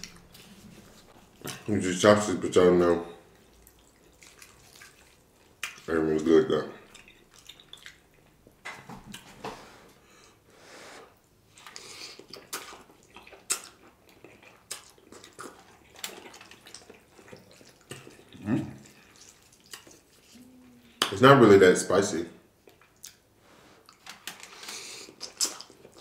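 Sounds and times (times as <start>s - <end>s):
noodles slurped: 3.2s - 5.9s, 11.0s - 21.0s
person humming: 20.3s - 21.0s.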